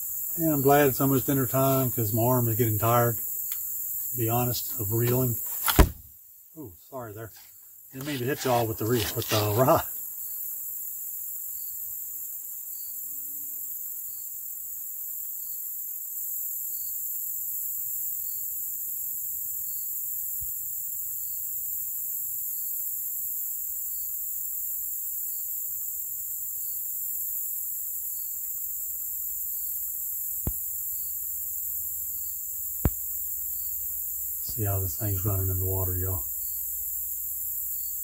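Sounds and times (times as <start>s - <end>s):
insects chorus: 0.0s - 38.0s.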